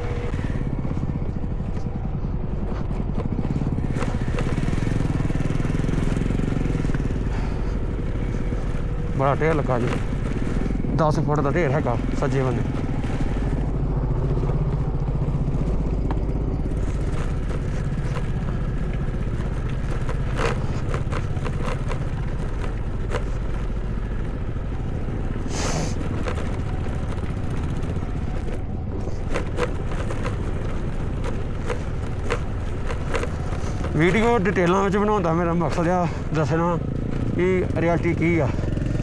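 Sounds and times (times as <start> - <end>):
motorcycle engine running: 0.0 - 39.0
stones knocking and clattering: 14.4 - 24.2, 26.0 - 35.8.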